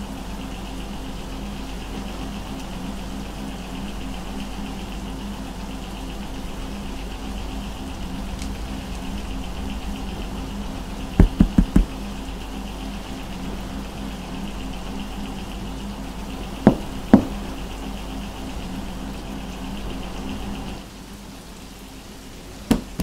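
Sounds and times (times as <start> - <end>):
steady low hum: 0.0 - 23.0
knocking on a wall: 11.2 - 11.9, 16.7 - 17.4, 22.7 - 23.0.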